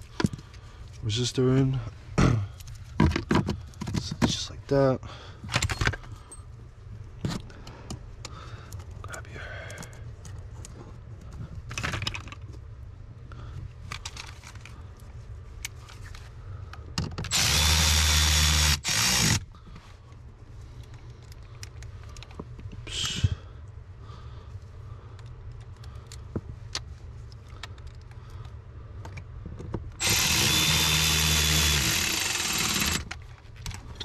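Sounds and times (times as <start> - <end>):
power drill driving screw: 17.3 - 19.4, 30.0 - 33.1.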